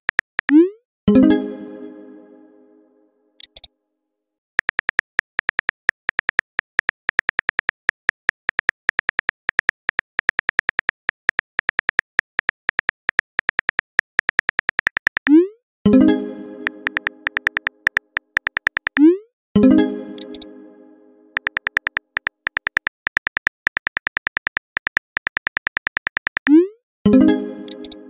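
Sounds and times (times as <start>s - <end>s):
keyboard typing clicks: 0.1s - 0.7s, 3.4s - 3.7s, 4.6s - 15.5s, 16.6s - 19.2s, 20.1s - 20.5s, 21.4s - 26.7s, 27.6s - 28.0s
high blips: 14.9s - 23.9s, 26.4s - 28.0s.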